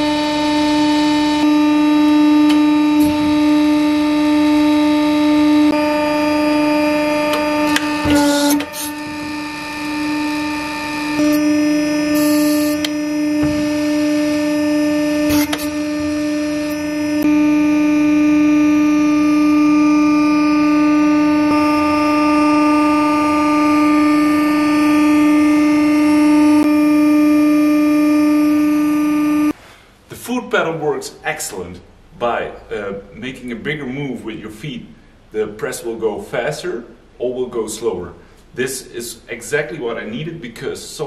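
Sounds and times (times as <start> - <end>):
hydraulic pump motor whine: 0.0 - 29.6.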